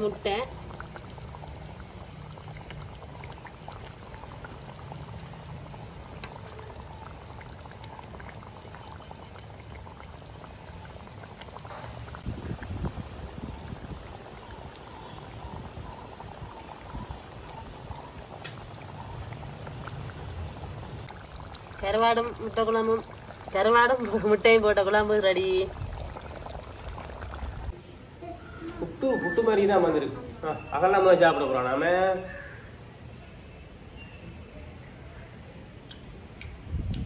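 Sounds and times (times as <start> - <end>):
curry bubbling in a pot: 0.0 - 27.8.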